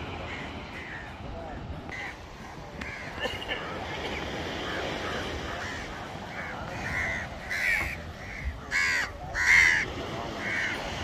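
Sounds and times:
crows cawing: 4.6 - 10.9.

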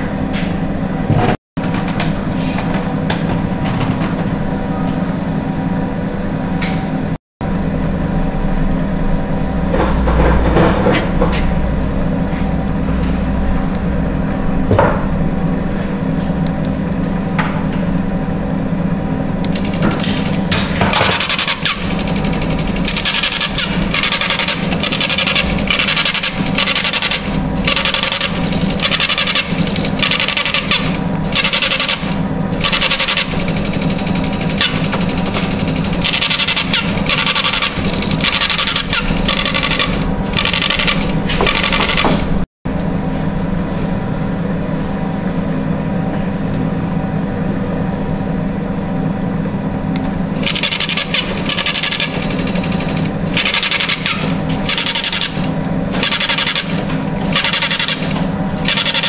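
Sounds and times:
test apparatus humming: 17.4 - 42.9
printer printing: 19.5 - 42.4, 50.3 - 59.0.

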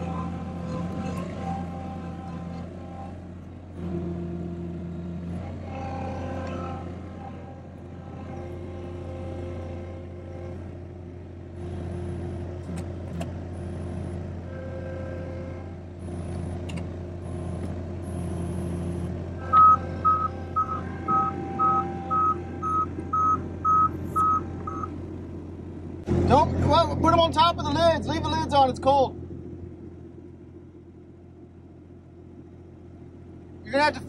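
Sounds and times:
loader engine running: 0.0 - 34.0
reversing alarm beeping: 18.1 - 24.9.

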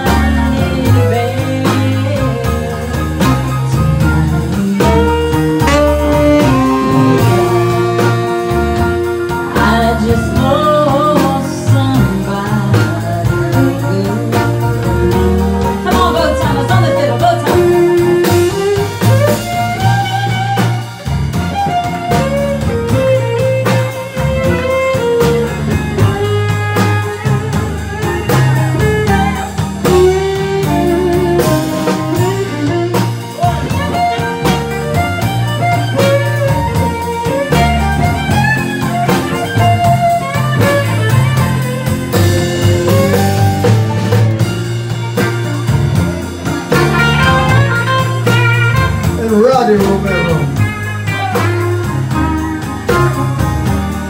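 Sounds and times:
electric guitar: 0.0 - 54.0
keyboard: 0.0 - 54.0
fiddle: 15.6 - 42.3.

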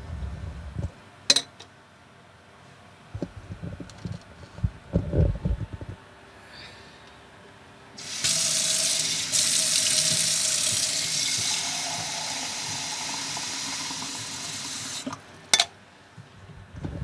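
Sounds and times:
tap water filling a glass carafe: 8.0 - 15.2.

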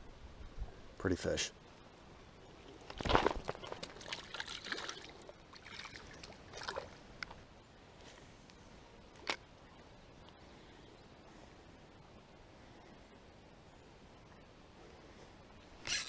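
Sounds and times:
water splashing and trickling: 2.9 - 7.2.

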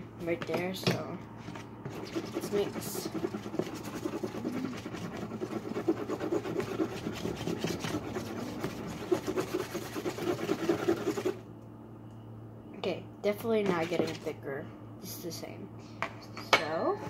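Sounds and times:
utensil scraping slime on tray: 1.5 - 11.4, 13.6 - 14.3.

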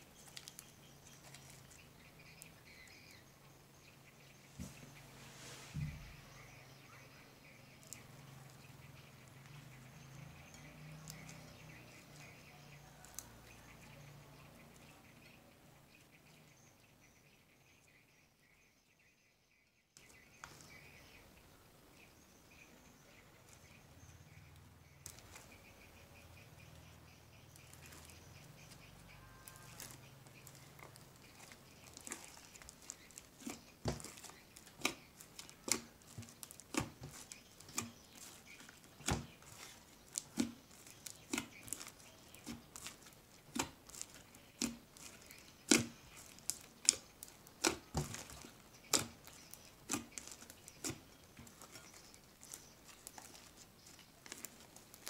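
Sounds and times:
slime popping and clicking: 39.0 - 51.0.

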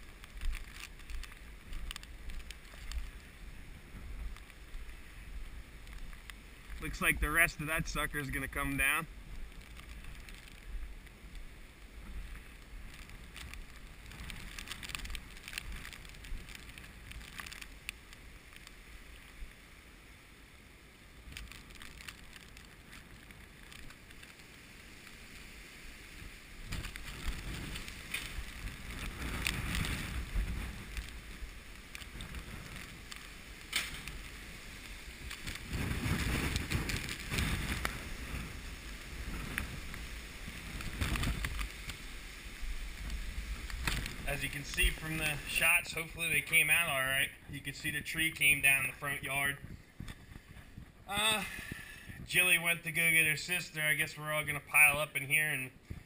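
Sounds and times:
wind gusts buffeting microphone: 21.1 - 53.5.

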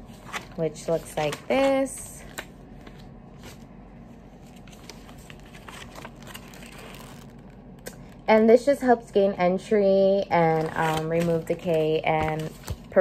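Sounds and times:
paper pages rustling: 0.0 - 7.6, 10.5 - 13.0
quiet room hum: 0.0 - 13.0.

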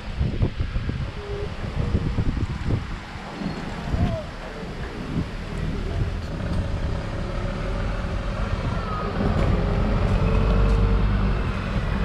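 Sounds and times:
diesel engine rumbling: 0.0 - 12.0.

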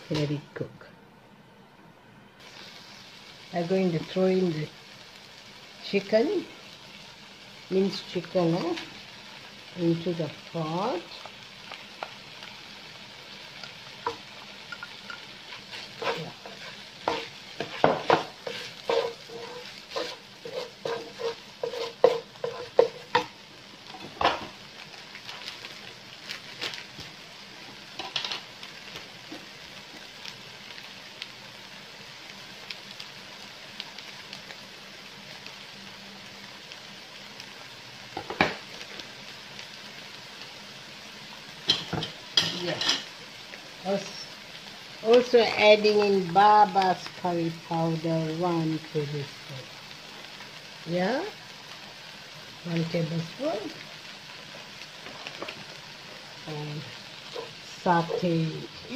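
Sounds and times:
food sizzling in a wok: 0.0 - 58.9
spatula scraping pan: 15.5 - 23.3.

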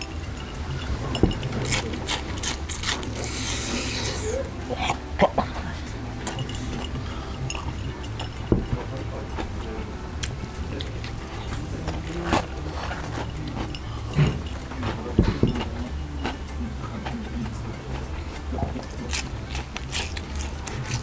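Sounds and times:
steady low hum: 0.0 - 21.0
chewing crunchy fried food: 1.1 - 7.8, 9.4 - 21.0.

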